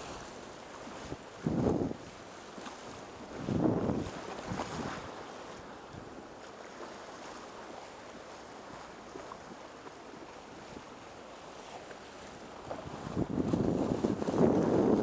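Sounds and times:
wind on microphone: 0.0s - 2.2s, 2.8s - 6.2s, 12.6s - 15.0s
small waves washing: 0.0s - 15.0s.

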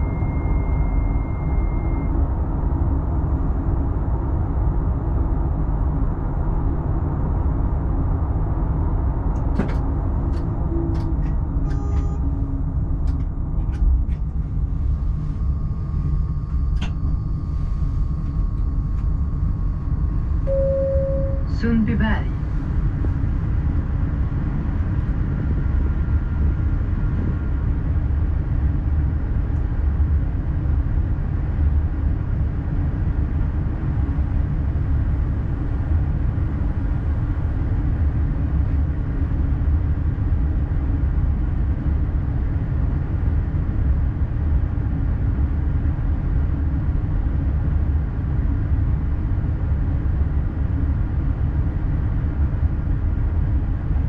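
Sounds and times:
faint high tone: 0.0s - 2.1s, 11.6s - 12.2s, 20.5s - 22.3s.

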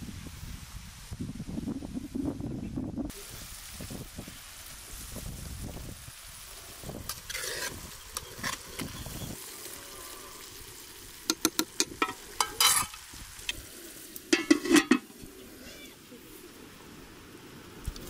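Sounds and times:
food sizzling in oil: 3.1s - 16.8s
metal spoon scraping pot: 7.3s - 8.9s, 12.0s - 13.0s, 14.4s - 15.1s
clinks and knocks against pot: 11.3s - 13.0s, 14.3s - 15.1s.

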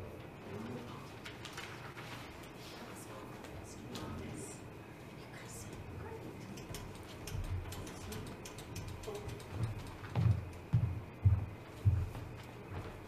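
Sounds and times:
faint clicks and shuffling: 0.0s - 13.0s
footsteps thudding: 10.0s - 13.0s.

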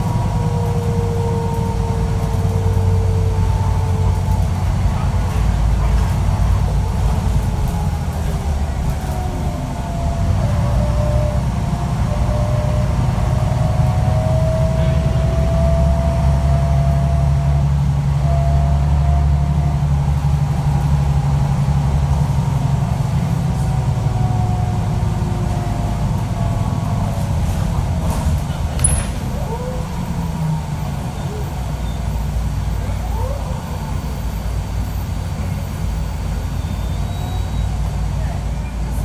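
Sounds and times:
bus diesel engine droning: 0.0s - 39.0s
transmission whine: 6.6s - 33.0s.

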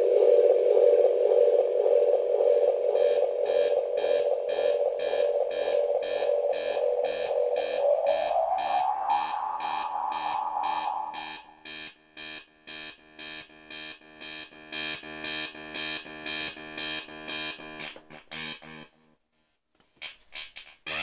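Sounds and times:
held synth tone: 0.0s - 12.0s
buzzy synth beeps: 3.0s - 15.3s.

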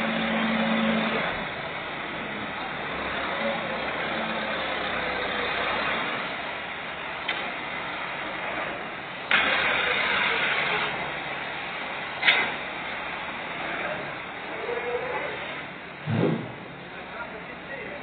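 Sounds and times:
tractor diesel engine running: 0.0s - 18.0s
rush of noise: 16.0s - 17.0s.

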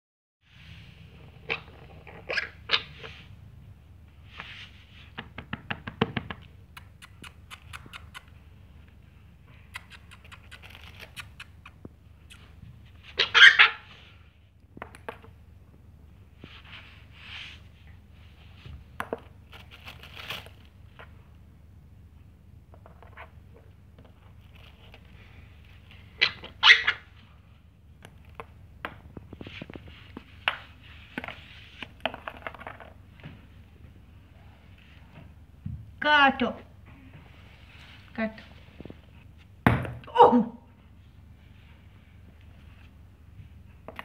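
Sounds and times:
light scratching and rustling: 29.2s - 33.6s.

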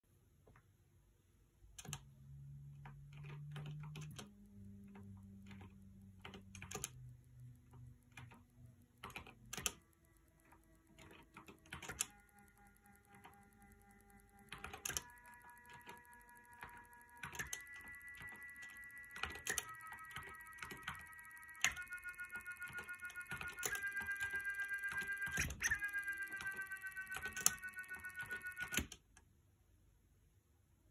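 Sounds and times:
motor click: 10.4s - 29.0s.

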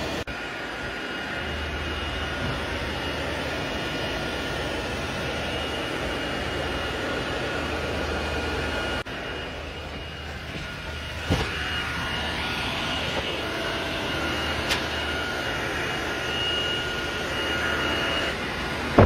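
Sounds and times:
server cooling fans whooshing: 0.0s - 19.0s
thin steady whine: 0.0s - 19.0s.

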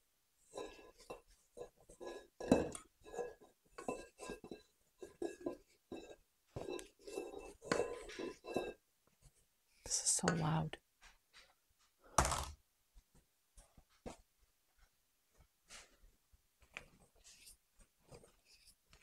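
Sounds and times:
spatula scraping metal bowl: 0.5s - 8.8s.

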